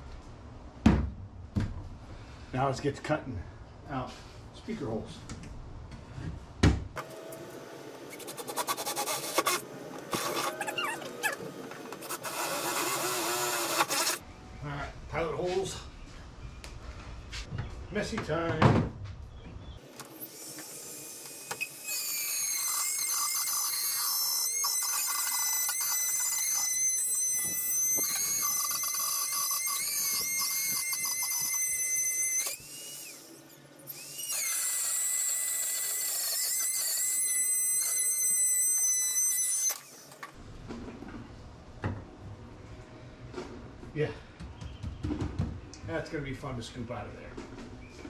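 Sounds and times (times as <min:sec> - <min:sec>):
power tool whining: 0:07.0 - 0:14.2, 0:19.9 - 0:40.3.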